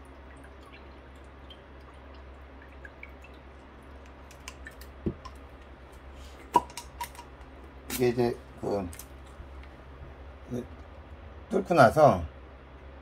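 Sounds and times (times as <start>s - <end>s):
water dripping faintly: 0.0s - 11.5s.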